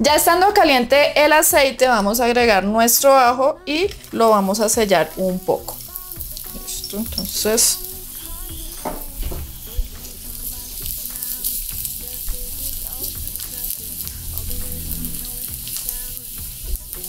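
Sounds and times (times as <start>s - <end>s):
garlic sizzling in oil: 3.1s - 17.0s.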